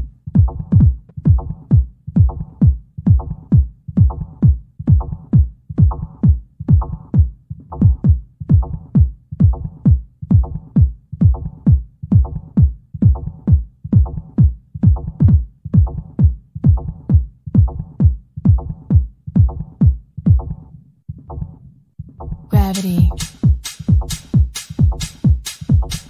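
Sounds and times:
deep drum machine kick: 0:00.0 - 0:21.6, 0:22.2 - 0:26.0
electronic dance music: 0:22.5 - 0:26.0.

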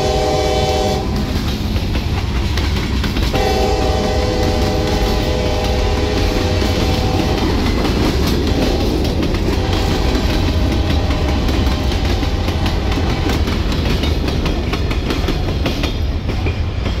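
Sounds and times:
train horn: 0:00.0 - 0:01.4, 0:03.3 - 0:13.3
freight train rumbling past: 0:00.0 - 0:17.0.

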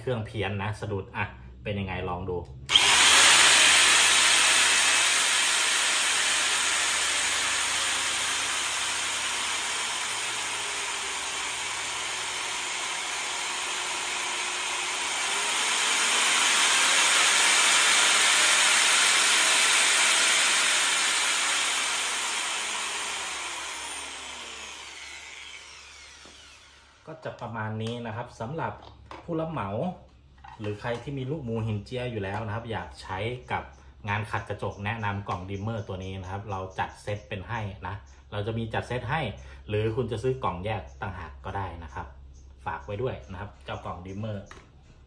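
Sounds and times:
angle grinder motor whirring: 0:02.7 - 0:27.2.

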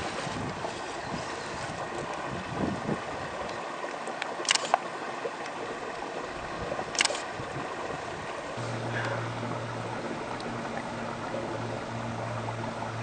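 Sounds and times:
brook water running: 0:00.0 - 0:13.0
sharp clicks: 0:04.4 - 0:04.8, 0:06.9 - 0:07.2.

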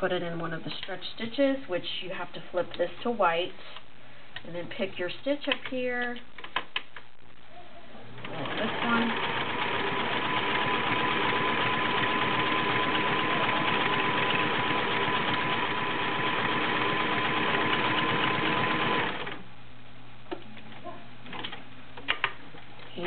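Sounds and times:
sewing machine running: 0:08.2 - 0:19.4.

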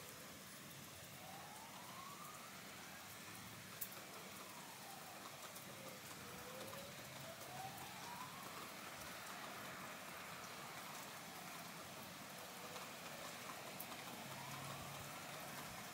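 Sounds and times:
rain hissing: 0:00.0 - 0:15.9.

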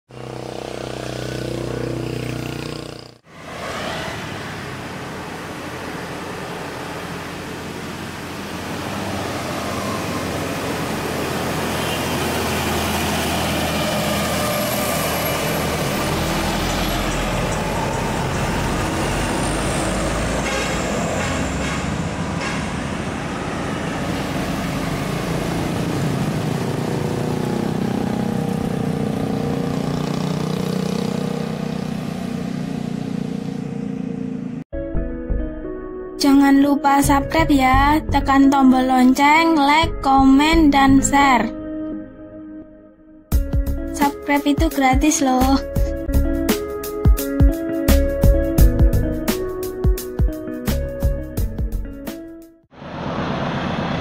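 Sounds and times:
heavy vehicle passing close: 0:00.1 - 0:34.7, 0:52.7 - 0:54.0
traffic: 0:00.1 - 0:34.7, 0:52.7 - 0:54.0
truck engines labouring uphill: 0:00.1 - 0:34.7, 0:52.8 - 0:54.0.

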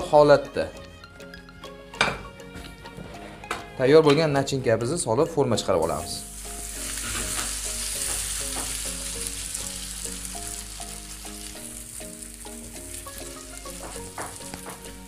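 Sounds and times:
soft melody of held notes: 0:00.0 - 0:15.0
pancake sizzling in hot oil: 0:06.2 - 0:14.7.

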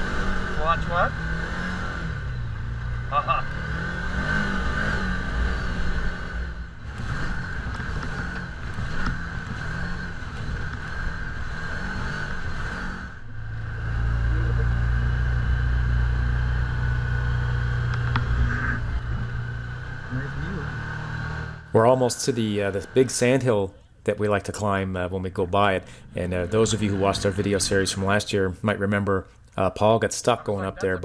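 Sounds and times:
utility vehicle engine running: 0:00.0 - 0:28.5
steady high whine: 0:10.0 - 0:23.8.

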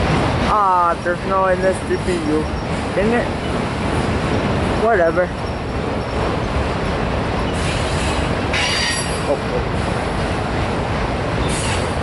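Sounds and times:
train wheels rumbling on rails: 0:00.0 - 0:12.0
train wheel squeal: 0:07.4 - 0:09.4, 0:11.4 - 0:12.0.

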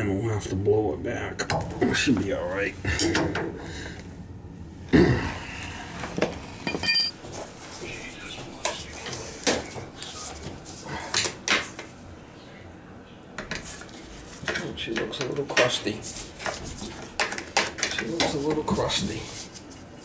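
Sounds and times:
metal tools clinking on fittings: 0:06.7 - 0:07.2.

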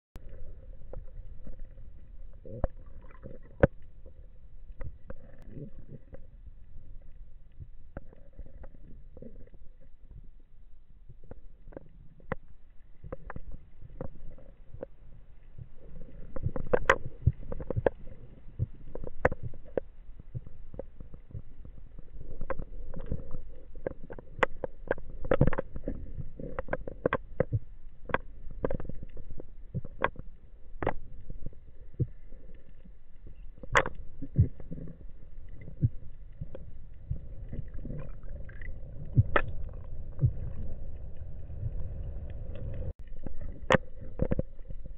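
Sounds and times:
underwater rumble of moving water: 0:00.2 - 0:44.9.

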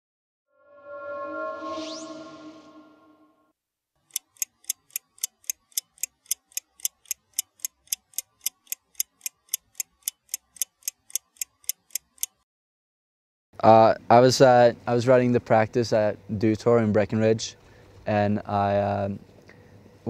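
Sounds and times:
clock ticking: 0:04.0 - 0:12.4
man talking: 0:13.6 - 0:19.2.

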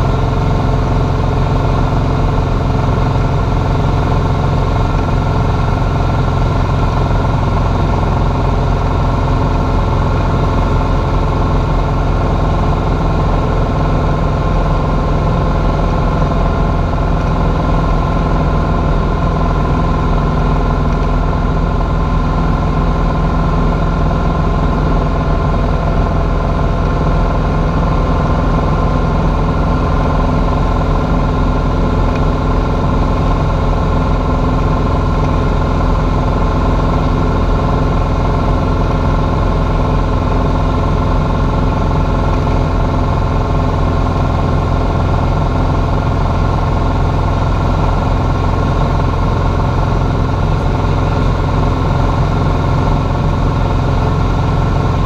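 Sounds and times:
propeller plane engine hum: 0:00.0 - 0:55.0.

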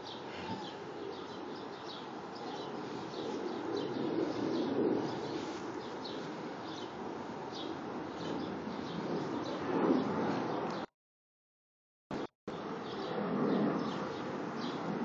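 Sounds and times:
bird chirping: 0:00.0 - 0:10.9.

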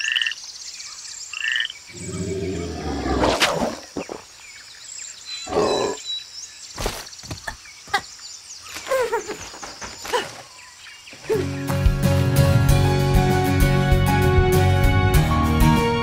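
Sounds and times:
frog croak: 0:00.0 - 0:00.4, 0:01.3 - 0:02.6.

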